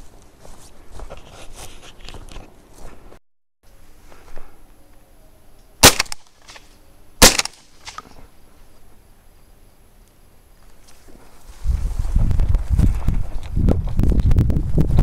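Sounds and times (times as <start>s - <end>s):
shotgun shots: 5.8s - 6.6s, 7.2s - 8.1s.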